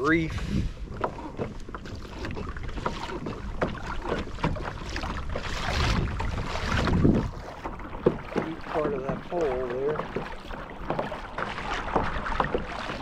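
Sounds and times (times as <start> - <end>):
wind buffeting microphone: 0.0 - 10.1
waves lapping against kayak hull: 0.0 - 13.0.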